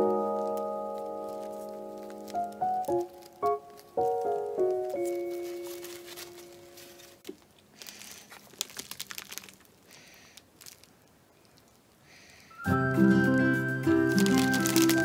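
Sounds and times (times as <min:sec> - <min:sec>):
background music: 0:00.0 - 0:05.7, 0:12.6 - 0:15.0
plastic bag crinkling: 0:00.0 - 0:12.0, 0:13.9 - 0:15.0.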